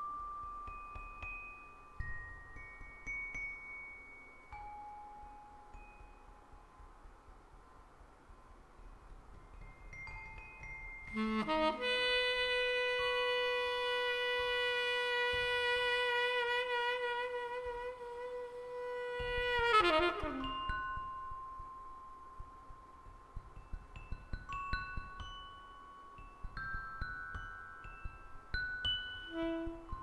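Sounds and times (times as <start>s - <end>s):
soft chime tones: 0.0s - 7.1s, 8.7s - 11.8s
reedy wind instrument note: 11.1s - 20.7s, 29.3s - 30.0s.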